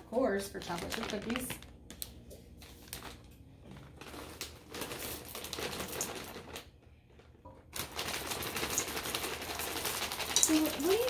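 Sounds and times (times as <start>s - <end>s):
plastic bag crinkling: 0.1s - 11.0s
chocolate chips rattling into bowl: 7.8s - 11.0s.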